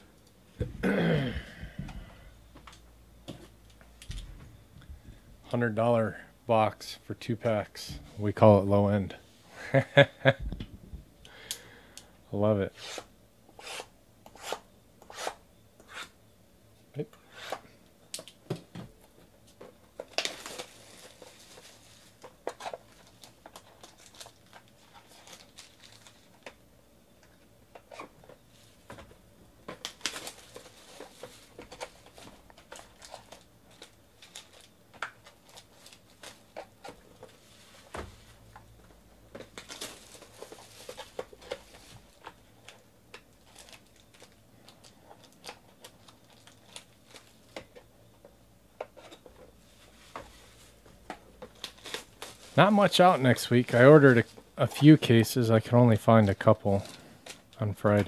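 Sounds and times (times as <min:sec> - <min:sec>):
plastic shrink-wrap crinkling: 0:20.0 - 0:26.4, 0:29.7 - 0:37.9, 0:39.5 - 0:47.6, 0:51.4 - 0:53.0.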